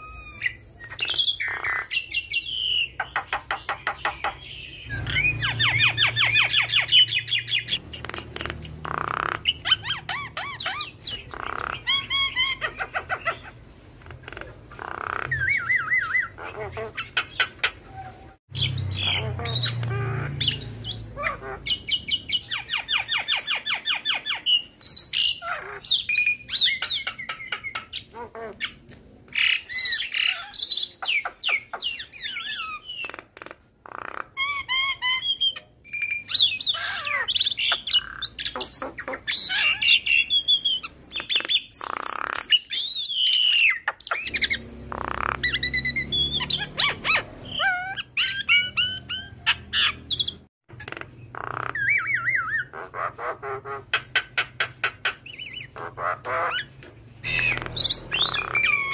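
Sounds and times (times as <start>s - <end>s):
bird singing whistles and squawks: 0.0s - 13.6s, 14.4s - 28.8s, 29.4s - 58.9s.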